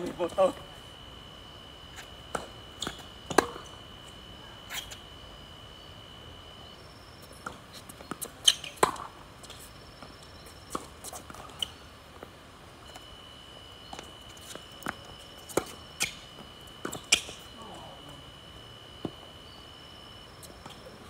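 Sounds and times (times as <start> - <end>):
tennis ball struck by rackets: 2.3 - 3.6, 8.1 - 9.1.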